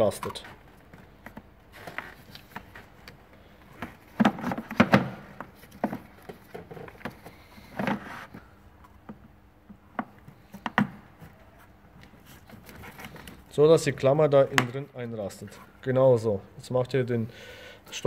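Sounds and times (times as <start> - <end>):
paper rustling: 11.4 - 13.5.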